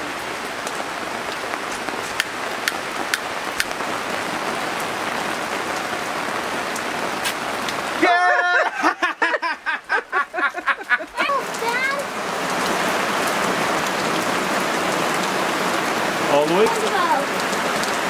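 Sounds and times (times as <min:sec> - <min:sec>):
steady rain hiss: 0:00.0 - 0:18.0
water drips clicking: 0:02.0 - 0:03.8, 0:16.4 - 0:18.0
person speaking: 0:10.4 - 0:12.0, 0:16.3 - 0:17.3.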